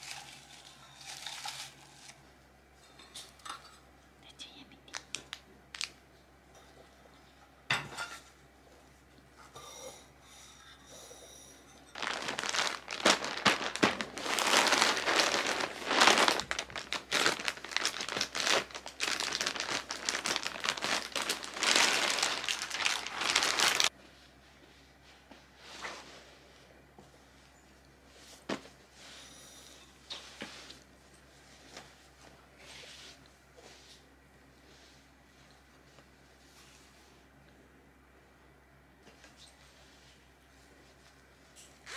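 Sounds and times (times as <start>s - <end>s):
plastic packaging crinkling: 0.0s - 2.2s, 4.9s - 6.0s, 11.9s - 23.9s.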